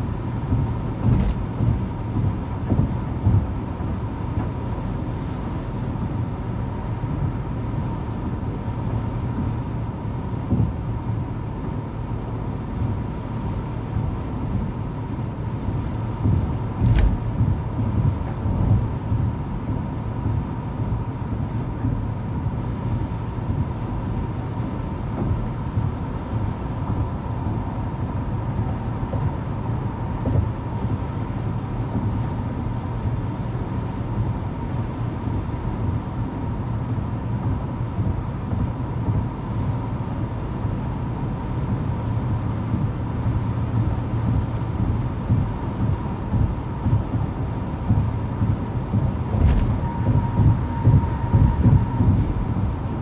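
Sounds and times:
tyre rumble inside car: 0.0s - 7.4s, 8.9s - 11.6s, 14.2s - 14.8s, 15.8s - 53.0s
car bumps: 0.5s - 3.6s, 10.4s - 10.8s, 16.2s - 19.3s, 30.2s - 30.7s, 47.9s - 52.8s.

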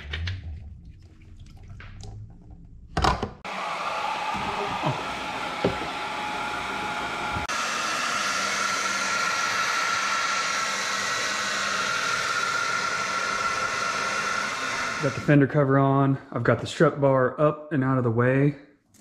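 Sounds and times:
hair dryer blowing air: 3.4s - 15.4s.

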